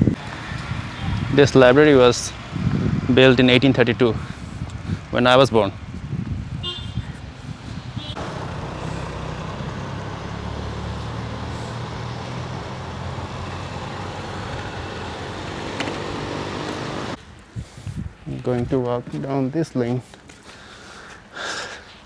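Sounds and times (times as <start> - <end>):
steady traffic hum: 0.0 - 22.0
motor scooters passing: 7.2 - 17.2.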